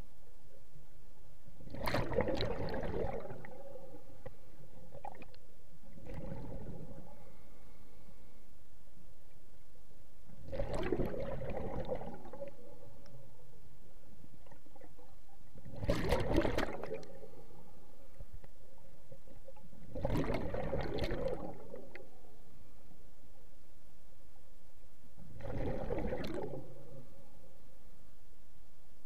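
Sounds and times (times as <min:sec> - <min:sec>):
faint steady hum: 0:00.0 - 0:29.0
regulator exhaust bubbles underwater: 0:01.7 - 0:03.7, 0:06.0 - 0:07.1, 0:10.4 - 0:12.6, 0:15.6 - 0:17.2, 0:19.8 - 0:22.1, 0:25.3 - 0:26.9.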